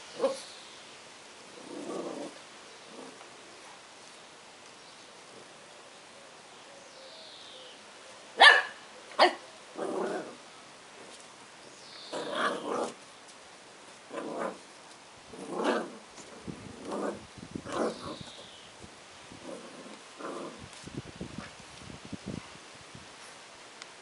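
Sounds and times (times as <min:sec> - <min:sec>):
puppy barking: 0:08.4 - 0:09.4.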